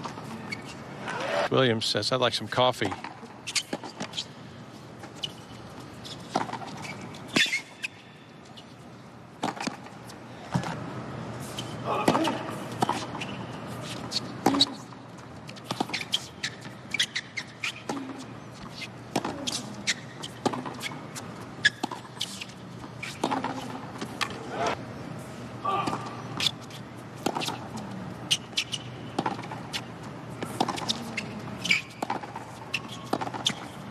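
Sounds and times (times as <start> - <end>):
rackets striking tennis ball: 11.9 - 24.7, 27.2 - 33.9
tennis ball bouncing: 15.6 - 24.4, 27.2 - 29.8, 30.4 - 33.8.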